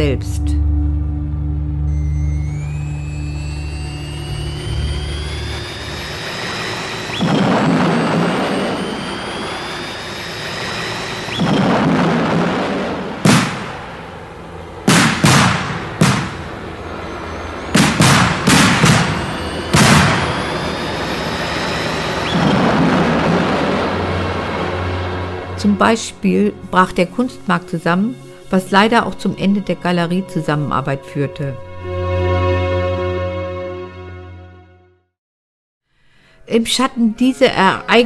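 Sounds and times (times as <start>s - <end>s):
jet engine whine rising: 0.6s - 28.5s
rushing boom: 2.0s - 26.0s
sharp blasts: 2.1s - 26.0s.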